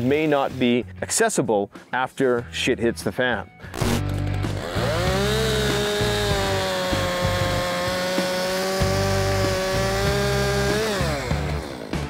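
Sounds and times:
chainsaw at full throttle: 3.7s - 12.0s.

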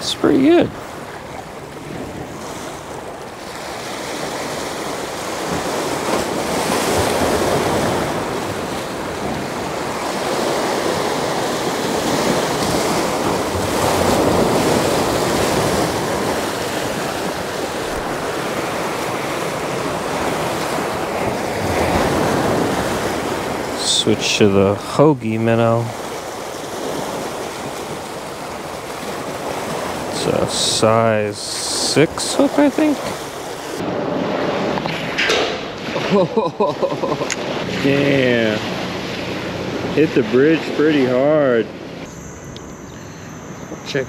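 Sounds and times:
small waves washing in: 0.0s - 42.4s
wind buffeting the microphone: 0.6s - 23.8s.

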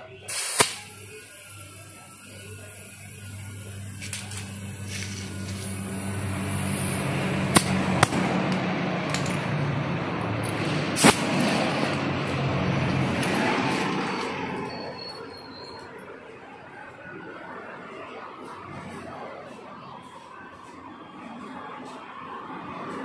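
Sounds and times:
air hissing out of tyre: 0.2s - 8.0s, 10.6s - 11.9s.

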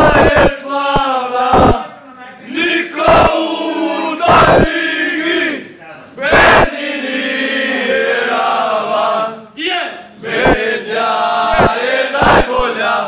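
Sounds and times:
young men singing a chant: 0.0s - 9.4s, 10.2s - 13.0s.

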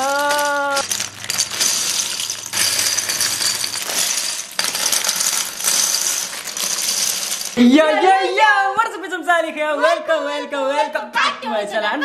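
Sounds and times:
plastic bricks clattering: 0.0s - 7.6s.

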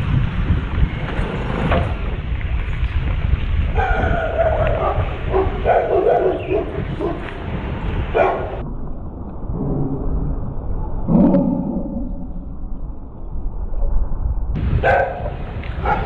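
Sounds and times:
wind rumbling on microphone: 0.0s - 16.0s.

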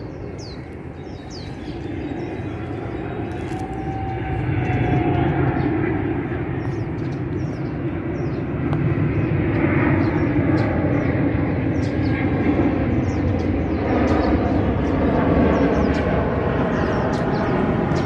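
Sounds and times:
vehicle rumble: 0.7s - 8.8s.

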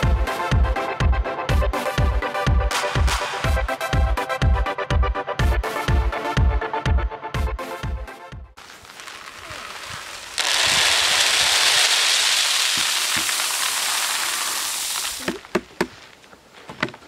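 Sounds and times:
grain kernels pouring rattling: 8.6s - 15.2s.

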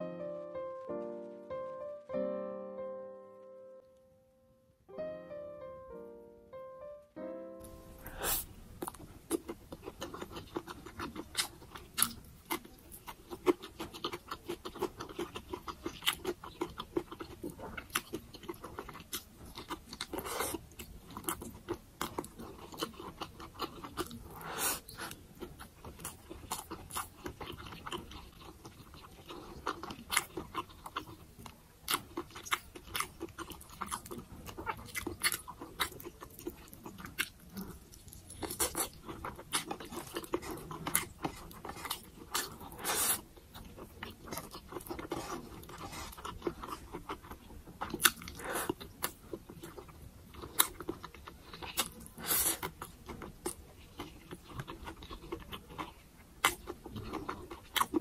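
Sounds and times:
piano notes: 0.0s - 8.3s
chewing and mouth sounds: 8.1s - 58.0s.

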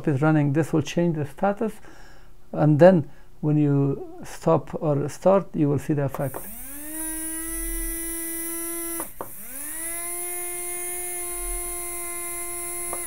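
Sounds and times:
small electric motor whining: 6.2s - 13.0s.

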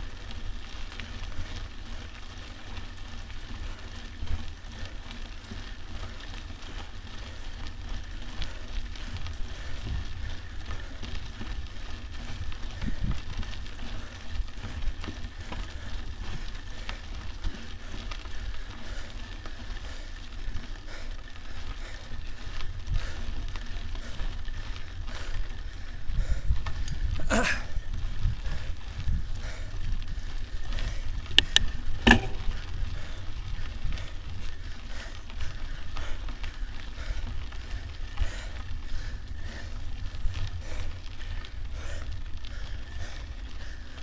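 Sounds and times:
bike tyres crackling on gravel: 0.0s - 44.0s
wind rumble on microphone: 0.0s - 44.0s
bike knocking over bumps: 31.4s - 33.0s.

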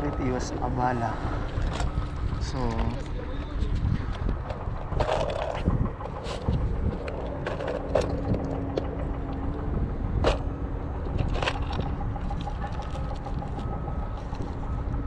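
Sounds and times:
steady low rumble: 0.0s - 15.0s
plastic tackle box clattering: 4.3s - 8.4s.

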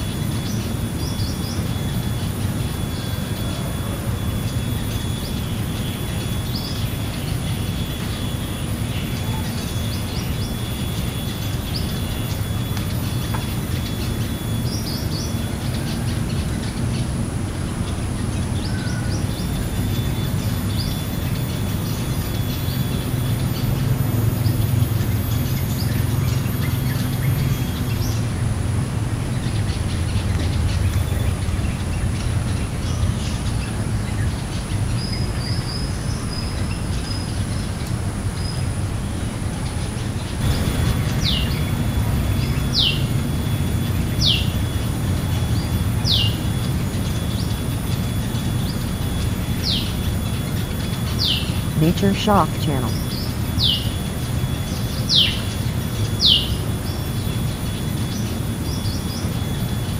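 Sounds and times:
low rumble: 40.4s - 44.0s
bird chirps: 40.4s - 59.9s.

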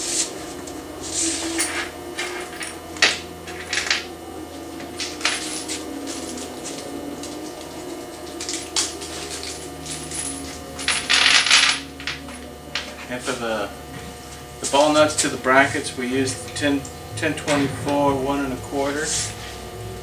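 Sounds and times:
steady low hum: 0.0s - 20.0s
metal hardware clinking: 4.8s - 13.1s.

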